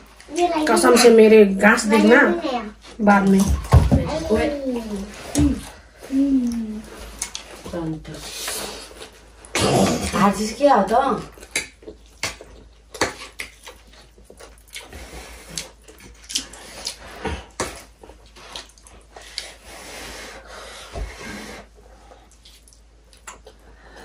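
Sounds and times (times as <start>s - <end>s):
slurping and chewing: 6.0s - 7.6s, 11.3s - 24.0s.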